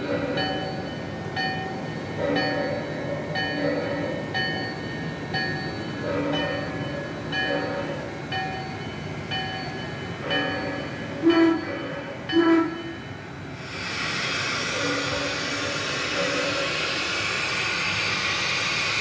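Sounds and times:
locomotive bell ringing: 0.0 - 13.3
steam whistle blasts: 11.2 - 11.7, 12.3 - 13.0
steady steam hiss: 13.4 - 19.0.

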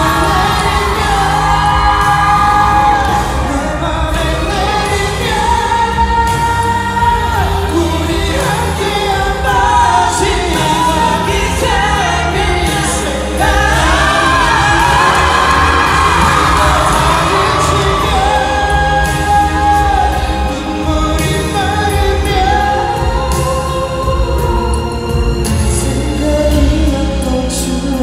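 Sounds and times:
amplified backing music: 0.0 - 28.0
men singing into microphones: 0.0 - 28.0.

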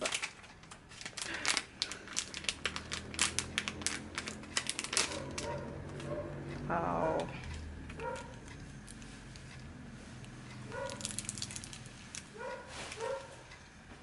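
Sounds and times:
plastic bag crinkling: 0.0 - 5.6, 10.7 - 13.3.

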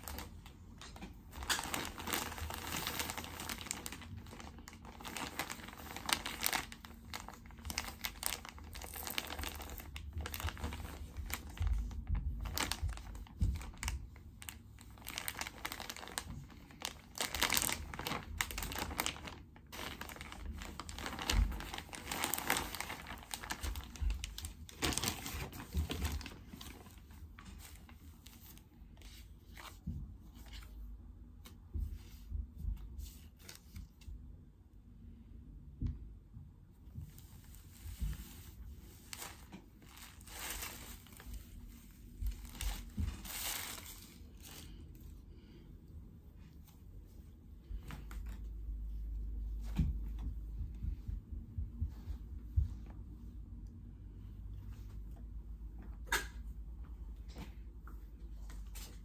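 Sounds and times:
plastic mailer bag crinkling: 0.0 - 28.6, 37.4 - 45.0.

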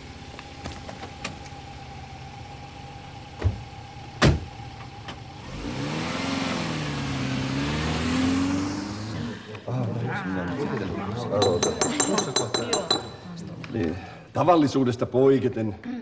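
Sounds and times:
car engine revving: 1.1 - 9.8
car door shutting: 3.3 - 5.2.

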